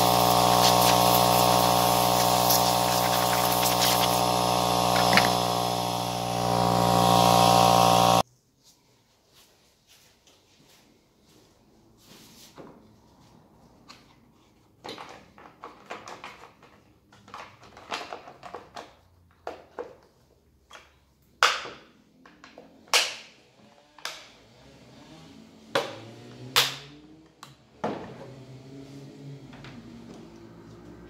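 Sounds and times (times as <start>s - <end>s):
chainsaw knocking on workbench: 4.9s - 5.4s.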